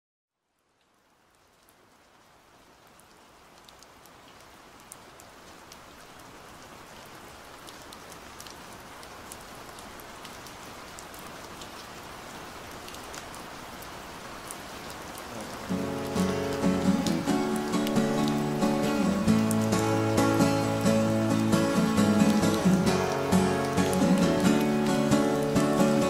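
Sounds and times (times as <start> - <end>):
steady rain hiss: 0.3 - 26.0
single raindrops ticking: 12.6 - 26.0
acoustic guitar: 15.4 - 26.0.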